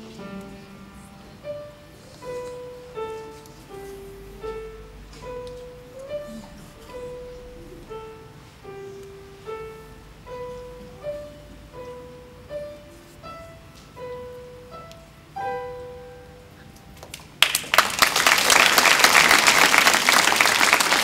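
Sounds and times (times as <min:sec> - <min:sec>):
slow piano melody: 0:00.0 - 0:17.4
audience applause: 0:17.0 - 0:21.0.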